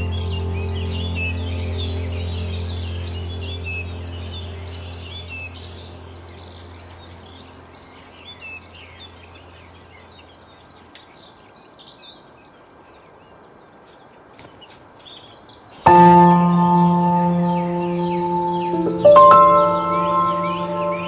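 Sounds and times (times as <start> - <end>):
low hum: 0.0 - 8.2, 15.9 - 21.0
songbirds chirping: 0.0 - 21.0.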